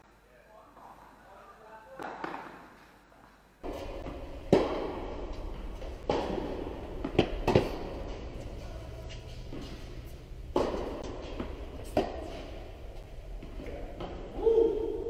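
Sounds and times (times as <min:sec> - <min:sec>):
tennis ball struck by rackets: 0:03.6 - 0:08.4, 0:09.1 - 0:14.4
tennis ball bouncing on court: 0:03.6 - 0:12.6.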